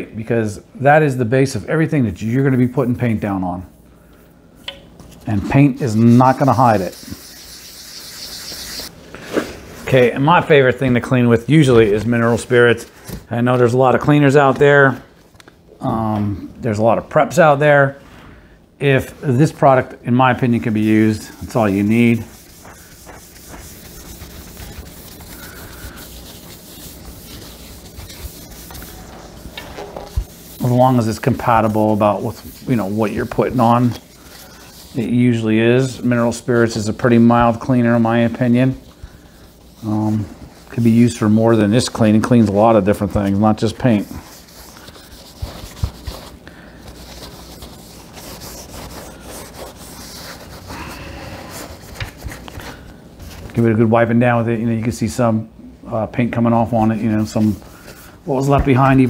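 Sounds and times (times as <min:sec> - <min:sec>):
steady low hum: 0:00.0 - 0:59.0
rag rubbing metal tank: 0:05.4 - 0:08.9, 0:20.5 - 0:50.7.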